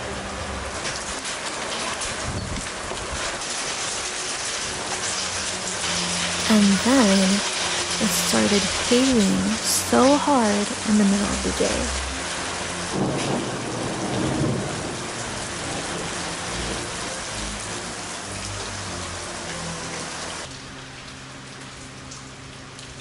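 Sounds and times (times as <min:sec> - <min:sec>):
hail pattering on plants: 0:00.8 - 0:18.4.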